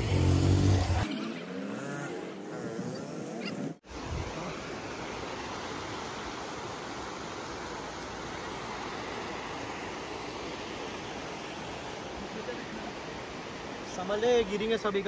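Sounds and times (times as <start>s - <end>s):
river rushing over stones: 3.8s - 15.0s.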